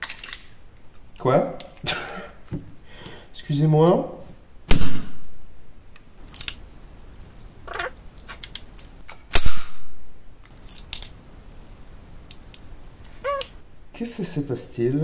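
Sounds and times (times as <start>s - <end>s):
pistol metallic clicks: 4.7s - 5.2s, 8.4s - 11.2s
gunshot with echo: 4.7s - 5.3s, 9.3s - 10.0s.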